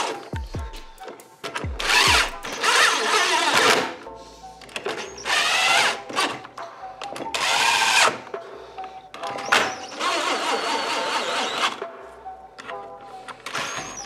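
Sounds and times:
cordless drill bursts: 9.5s - 11.8s.

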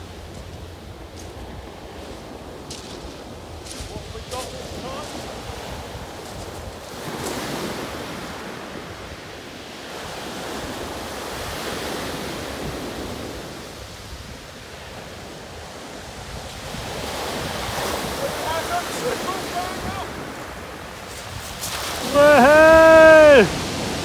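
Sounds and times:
waves breaking on shingle beach: 0.0s - 24.0s
wind rumbling on microphone: 0.0s - 24.0s.

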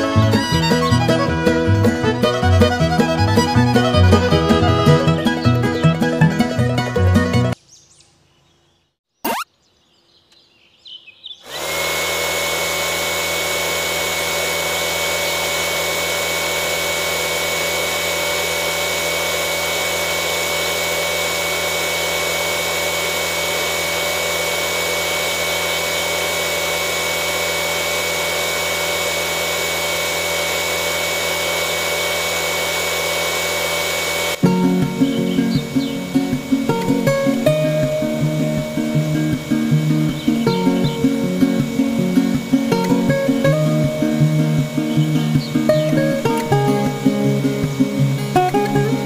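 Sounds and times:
small electric motor whining: 0.0s - 7.6s, 11.4s - 49.0s.

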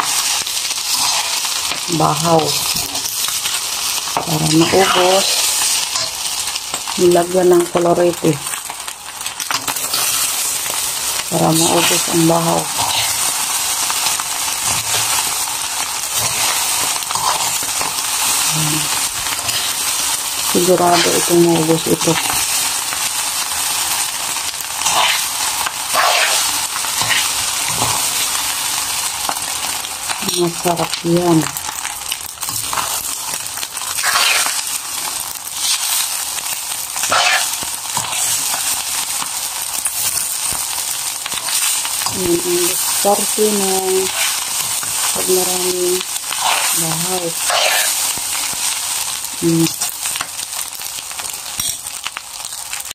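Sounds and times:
rice sizzling in a wok: 0.0s - 52.9s
metal spoon scraping a pan: 0.2s - 3.3s, 9.5s - 10.8s, 11.4s - 15.4s, 16.1s - 22.8s, 24.8s - 28.3s, 32.4s - 36.2s, 37.0s - 38.9s, 41.3s - 45.3s, 46.3s - 48.6s, 51.5s - 51.9s.

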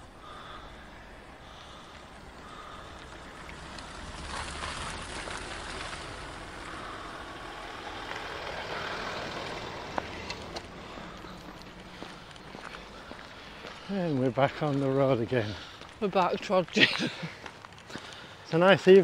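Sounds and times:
car driving past: 0.2s - 14.8s.

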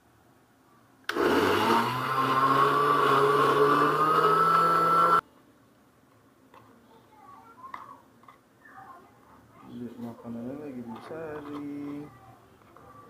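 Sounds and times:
electric blender running: 1.1s - 5.2s.

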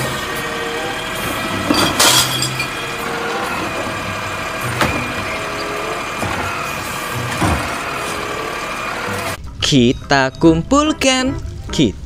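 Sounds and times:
hydraulic arm tipping cart: 0.0s - 9.4s
trash crashing into hopper: 0.0s - 9.4s
garbage truck running: 0.0s - 11.7s.

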